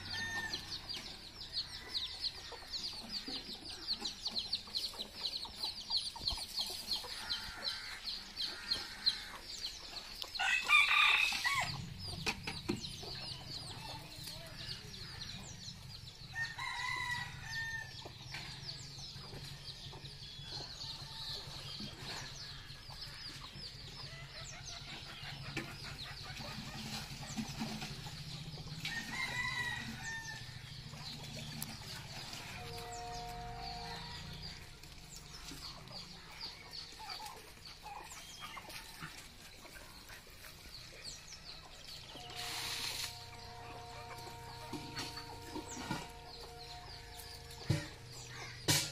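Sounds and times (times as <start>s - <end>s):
chickens clucking: 0.0s - 48.9s
rooster crowing: 10.4s - 11.7s.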